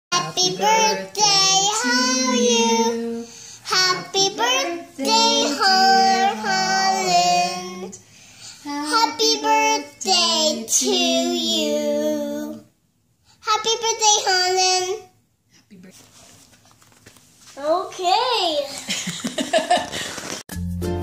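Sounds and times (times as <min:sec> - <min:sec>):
child singing: 0:00.1 - 0:08.0, 0:08.7 - 0:12.7, 0:13.5 - 0:15.0.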